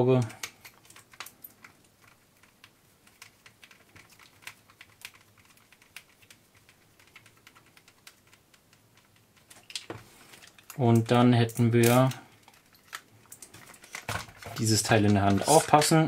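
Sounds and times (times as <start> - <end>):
plastic and metal parts handled: 0.2 - 16.0.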